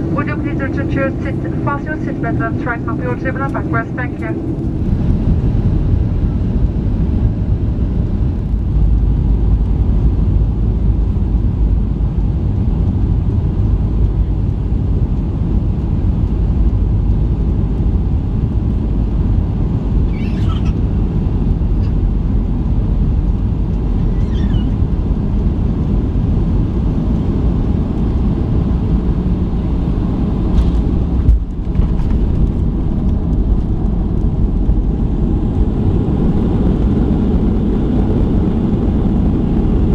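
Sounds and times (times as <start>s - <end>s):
airplane cabin engine rumble: 0.0s - 39.9s.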